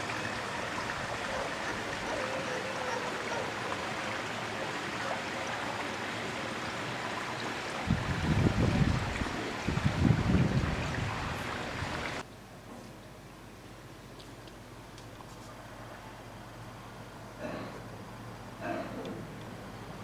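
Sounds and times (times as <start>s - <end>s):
water rushing into pool gutter: 0.0s - 12.2s
wind buffeting microphone: 7.8s - 12.2s.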